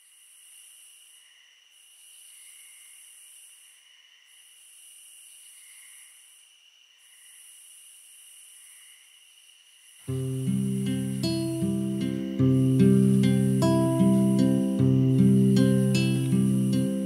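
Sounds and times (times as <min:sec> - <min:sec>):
faint high-pitched hiss: 0:00.0 - 0:17.0
pulsing higher hiss: 0:06.2 - 0:17.0
steady high tones: 0:10.1 - 0:17.0.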